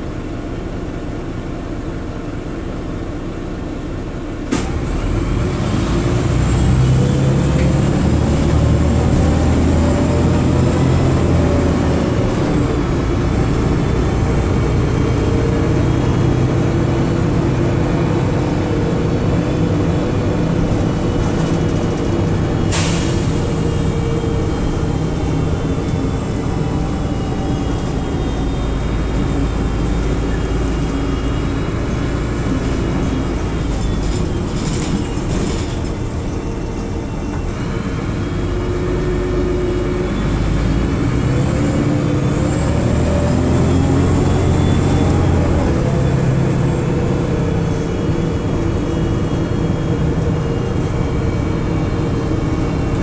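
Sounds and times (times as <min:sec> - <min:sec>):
bus diesel engine running: 0:00.0 - 0:53.0
rising engine whine: 0:04.6 - 0:53.0.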